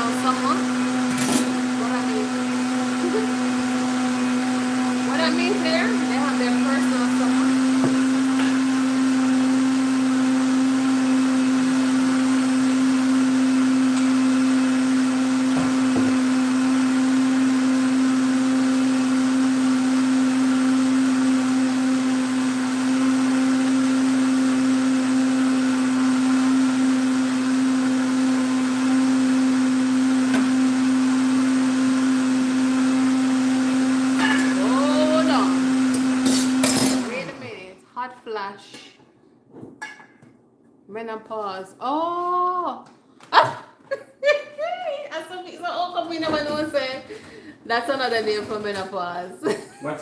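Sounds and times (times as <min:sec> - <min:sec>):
blender running: 0:00.0 - 0:37.7.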